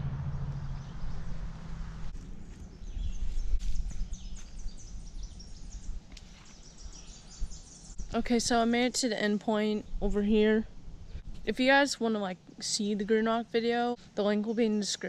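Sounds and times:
wind rumble: 0.0s - 6.2s
low hum with hiss: 0.0s - 15.0s
footsteps: 2.1s - 4.6s
small birds chirping: 2.4s - 10.6s.

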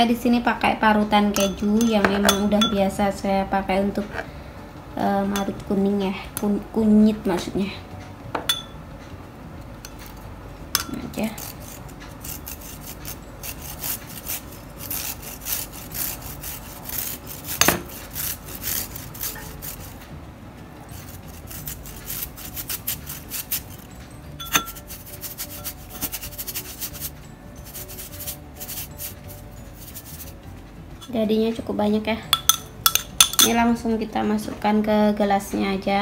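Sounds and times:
root grated on metal grater: 10.8s - 20.1s, 20.8s - 30.4s.

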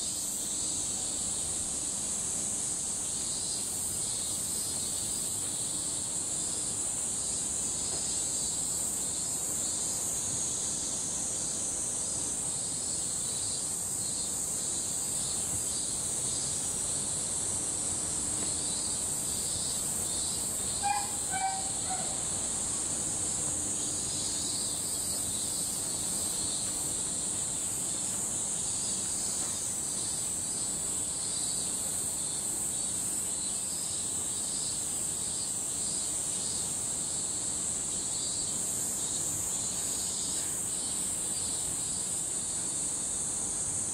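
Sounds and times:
cicadas droning: 0.0s - 43.9s
brief pitched call: 20.8s - 22.2s.

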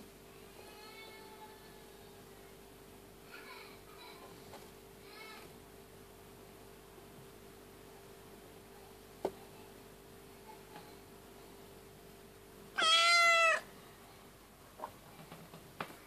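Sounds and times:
cat meowing: 12.8s - 13.7s.

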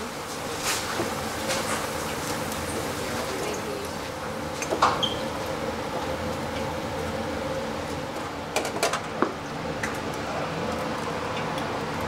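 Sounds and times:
kitchen hum: 0.0s - 12.0s.

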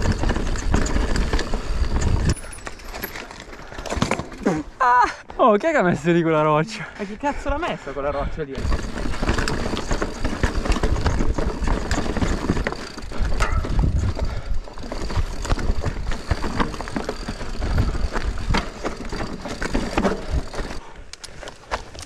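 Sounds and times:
bike clicking and knocking: 0.0s - 4.6s, 8.6s - 22.0s
bike tyres crunching over stones: 0.0s - 4.6s, 8.6s - 22.0s
heavy rumble: 8.6s - 20.9s.

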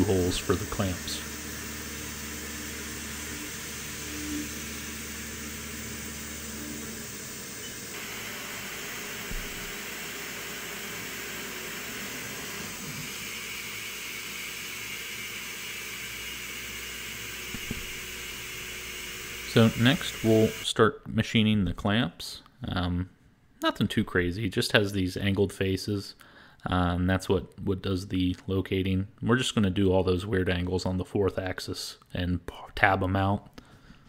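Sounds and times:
coolant spraying hiss: 0.0s - 2.1s, 19.5s - 20.5s.

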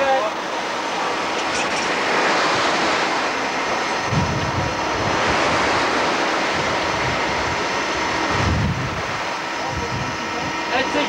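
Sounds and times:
sea noise: 0.0s - 11.0s
wind buffeting microphone: 1.3s - 11.0s
wind rushing: 2.0s - 10.2s.

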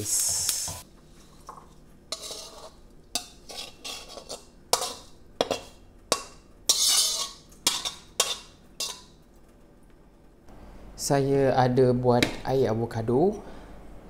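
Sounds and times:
metal spatula scraping a wok: 2.1s - 9.1s.

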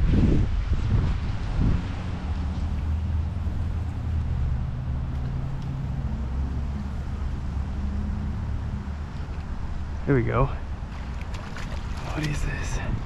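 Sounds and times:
low engine drone: 1.7s - 10.0s.

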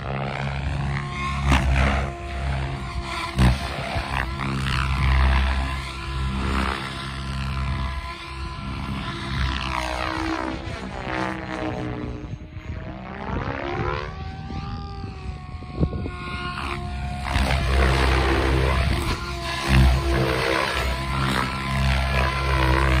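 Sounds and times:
rc helicopter rotor and motor whine: 0.0s - 23.0s.

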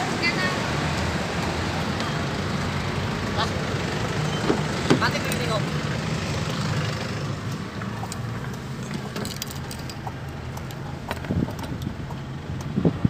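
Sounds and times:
car engine idling: 0.0s - 13.0s
clicks and rattles: 8.1s - 12.7s.

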